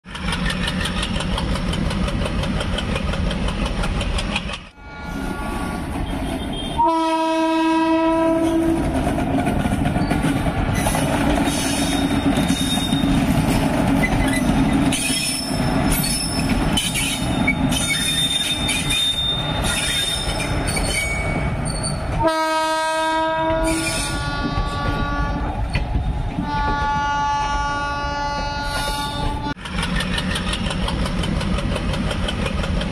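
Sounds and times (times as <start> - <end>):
train wheels clattering on rails: 0.0 - 4.8, 8.2 - 22.6, 23.2 - 27.6, 28.2 - 32.9
locomotive horn: 4.7 - 8.9, 22.2 - 25.6, 26.4 - 29.6.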